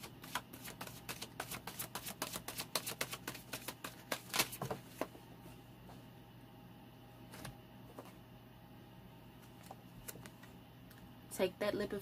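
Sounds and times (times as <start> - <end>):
cards being shuffled: 0.0 - 5.1.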